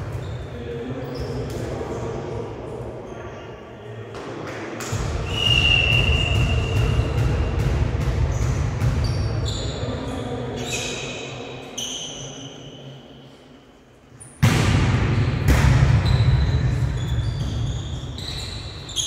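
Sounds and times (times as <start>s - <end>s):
sneakers squeaking on court: 0.0s - 1.6s, 8.3s - 12.7s, 16.0s - 19.0s.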